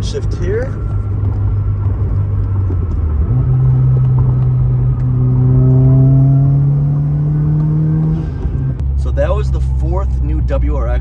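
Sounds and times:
car engine revving through downshift: 1.3 - 8.8.

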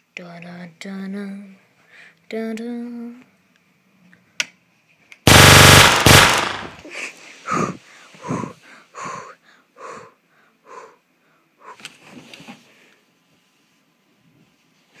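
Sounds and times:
loud distorted burst: 5.3 - 6.8
heavy breathing: 7.1 - 11.8.

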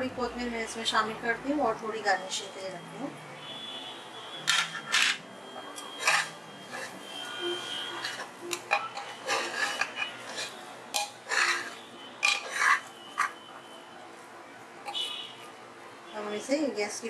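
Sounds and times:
metal spoon scraping pot bottom: 4.5 - 5.3, 5.9 - 7.0, 7.6 - 13.4.

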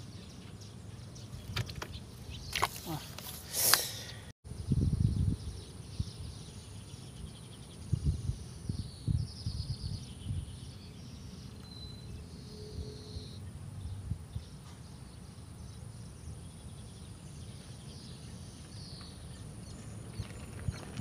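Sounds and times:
wind rumbling on microphone: 4.5 - 11.4, 12.2 - 21.0.

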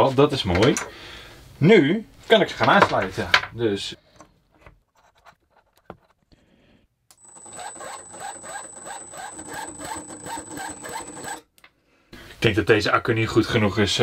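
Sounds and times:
electric starter cranking engine: 7.1 - 11.4
thin high whine: 7.2 - 11.4.

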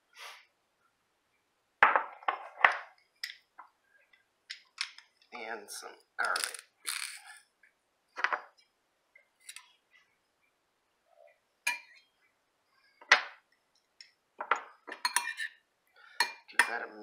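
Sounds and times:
metal clinking on ceramic bowl: 11.7 - 12.0, 14.9 - 15.5, 16.2 - 16.8.

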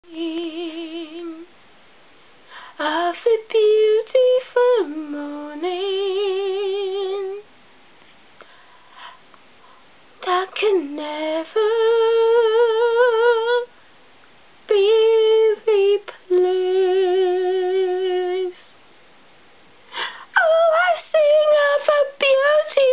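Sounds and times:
woman singing unaccompanied: 0.0 - 1.5, 2.6 - 7.5, 10.2 - 13.8, 14.6 - 18.7, 20.0 - 22.9.

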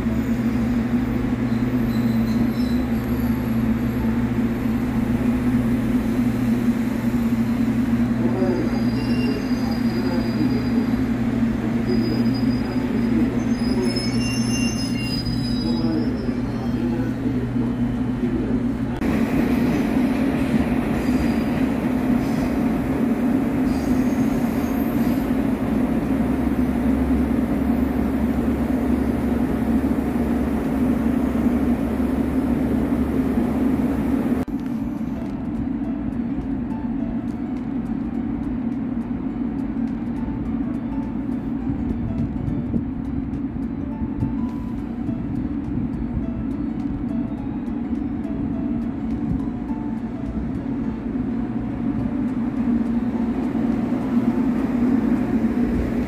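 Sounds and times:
electric train low hum: 0.0 - 56.0
high-pitched squeaks: 11.9 - 17.0.

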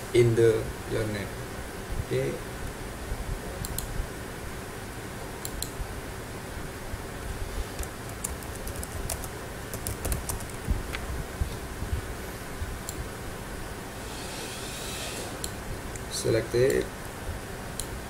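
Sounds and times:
low background noise: 0.0 - 18.0
keyboard typing: 7.8 - 10.7.

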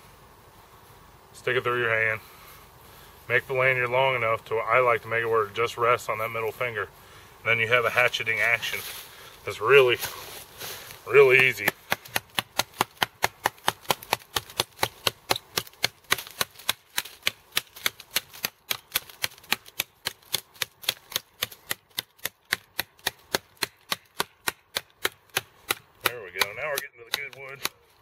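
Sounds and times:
knife chopping wood: 11.3 - 28.0.

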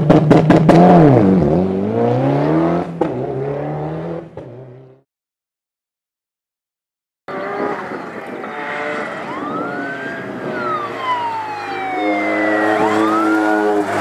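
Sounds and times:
car engine: 0.0 - 5.0, 7.3 - 14.0
siren wailing: 8.0 - 14.0.

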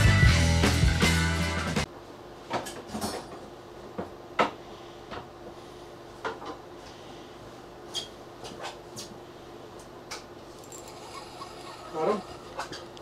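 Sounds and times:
steady low hum: 9.1 - 13.0.

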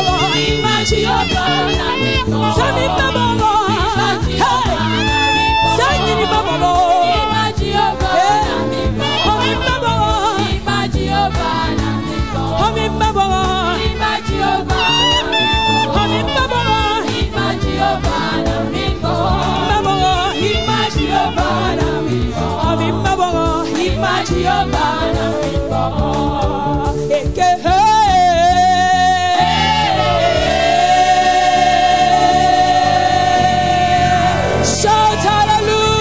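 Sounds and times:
gospel singing: 0.0 - 36.0
instrumental backing: 0.0 - 36.0
lead voice holding long note: 29.4 - 36.0.

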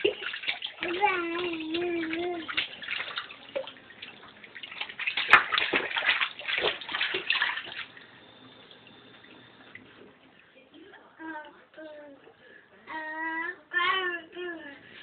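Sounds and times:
baby splashing bathwater: 0.0 - 10.6.

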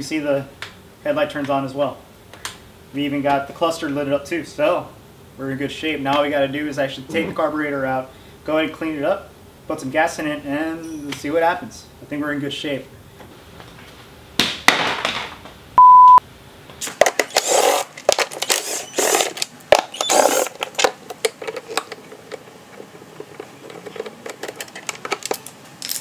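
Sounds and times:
loud steady beep: 15.8 - 16.2
plastic scraping and rustling: 16.8 - 26.0.

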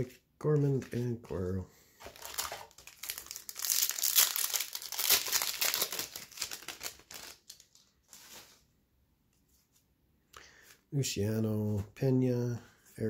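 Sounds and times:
foil wrapper tearing and crinkling: 2.0 - 8.6.

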